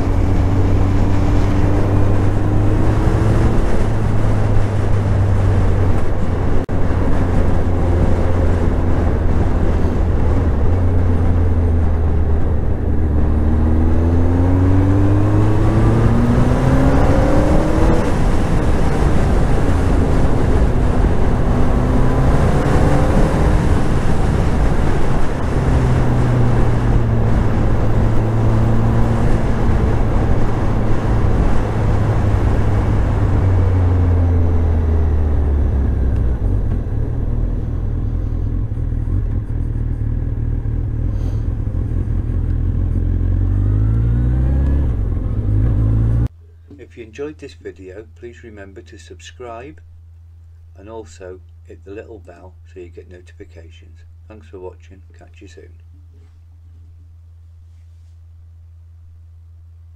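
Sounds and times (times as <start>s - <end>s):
motorcycle engine revving: 0.0s - 46.4s.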